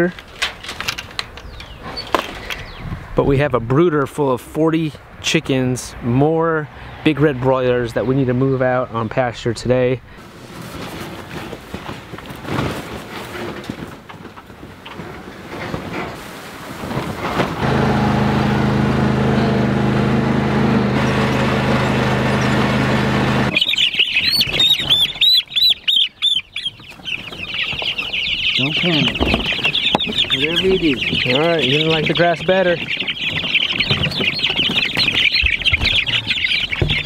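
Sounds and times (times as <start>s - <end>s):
lawn tractor engine running: 17.6s - 23.7s
chicks peeping: 18.7s - 37.0s.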